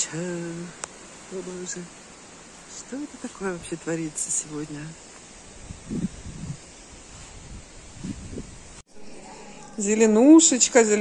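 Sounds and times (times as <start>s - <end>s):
leaves rustling: 0.0s - 11.0s
wind blowing over microphone: 3.3s - 8.8s.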